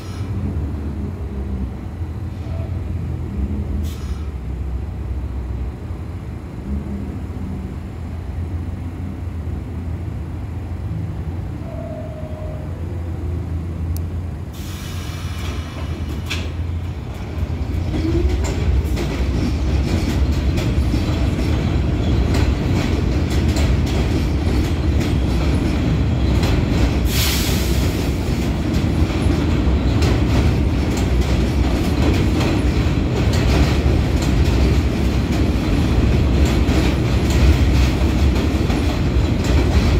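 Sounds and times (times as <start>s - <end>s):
subway train rumbling: 0.0s - 39.9s
wheels clacking over rail joints: 15.4s - 39.9s.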